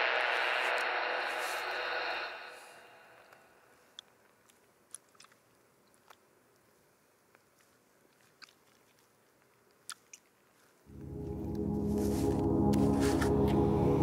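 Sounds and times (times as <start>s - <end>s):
man chewing and licking fork: 3.9s - 10.8s
ambient music with low drone: 10.9s - 14.0s.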